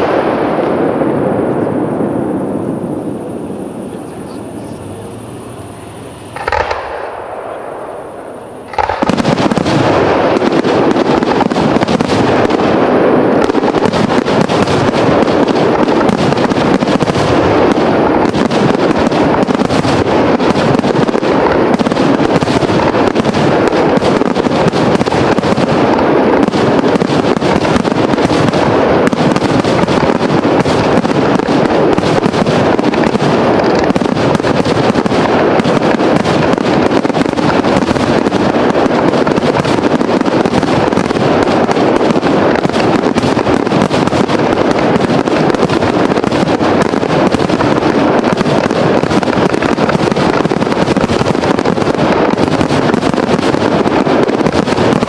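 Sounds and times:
fireworks bangs: 0:00.0 - 0:55.0.

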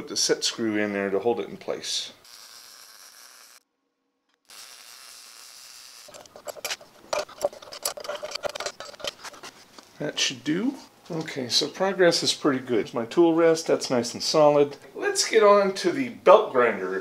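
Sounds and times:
welding crackling hiss: 0:02.2 - 0:03.6, 0:04.4 - 0:06.2.

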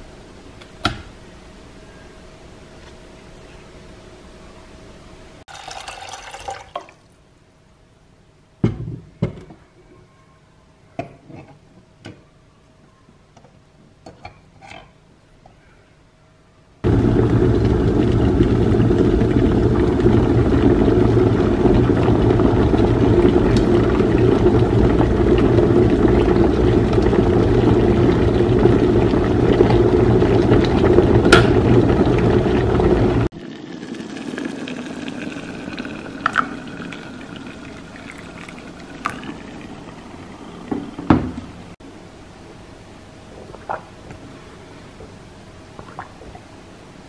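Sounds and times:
electric kettle boiling: 0:05.5 - 0:07.2, 0:16.8 - 0:41.6
water sounds: 0:16.9 - 0:41.8.

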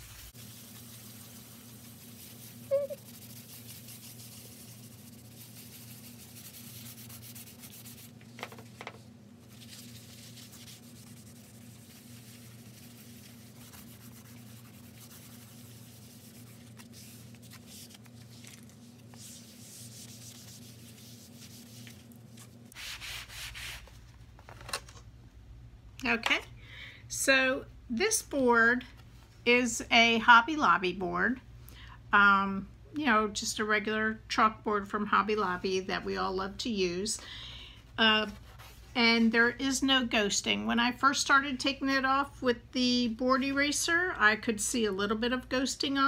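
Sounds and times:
eraser rubbing on chalkboard: 0:00.0 - 0:08.2, 0:09.6 - 0:18.0, 0:19.1 - 0:22.0, 0:22.7 - 0:23.9.

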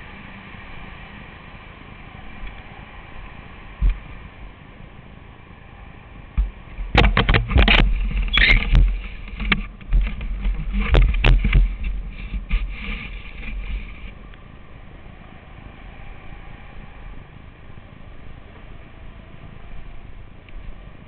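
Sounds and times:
low rumble: 0:00.0 - 0:21.0
knocks and rubbing on microphone: 0:06.4 - 0:14.2.

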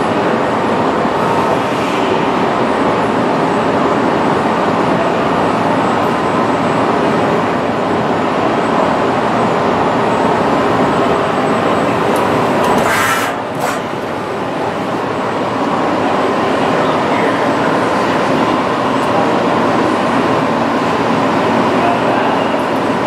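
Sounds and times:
lathe machine noise: 0:10.3 - 0:15.8.

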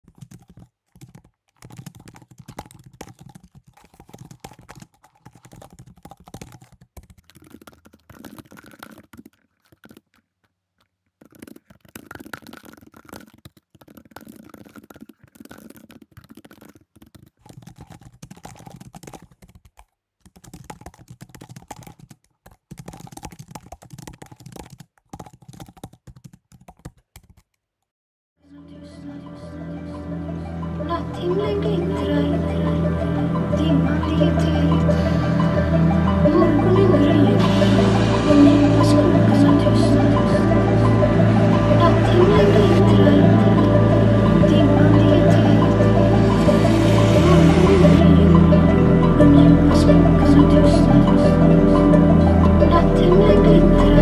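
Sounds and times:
computer keyboard typing: 0:00.0 - 0:10.3, 0:11.2 - 0:27.6.

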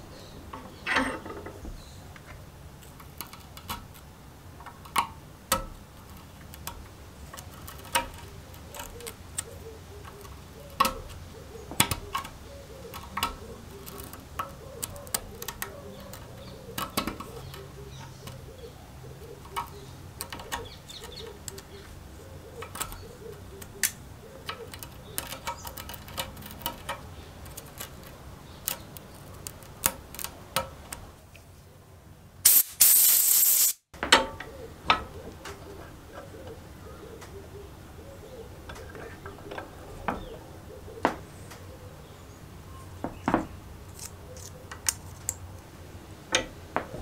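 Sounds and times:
loud hiss: 0:32.4 - 0:33.9.

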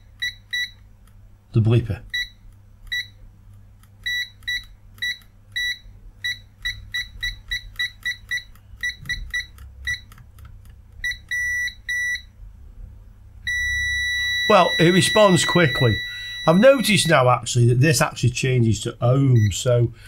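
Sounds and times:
multimeter high-pitched beeps: 0:04.1 - 0:10.1, 0:11.0 - 0:12.3, 0:13.5 - 0:17.2.

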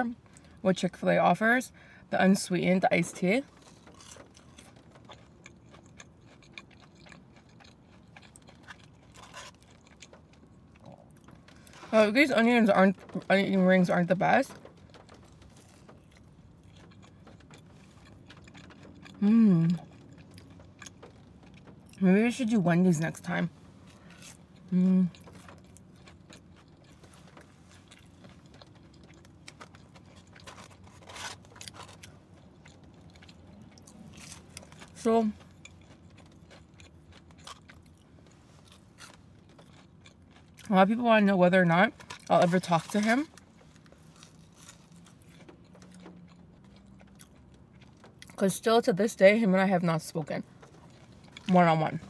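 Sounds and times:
person chewing crunchy food: 0:03.4 - 0:11.9, 0:14.5 - 0:22.0, 0:23.7 - 0:40.7, 0:41.6 - 0:48.4, 0:50.4 - 0:52.0.

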